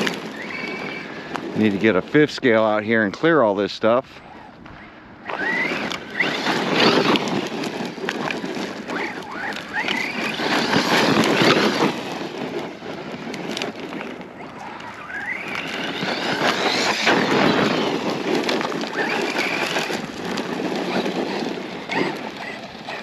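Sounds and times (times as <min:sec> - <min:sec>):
electric motor whining: 0:00.0 - 0:02.2, 0:04.2 - 0:23.0
tyres crunching on loose dirt: 0:00.0 - 0:23.0.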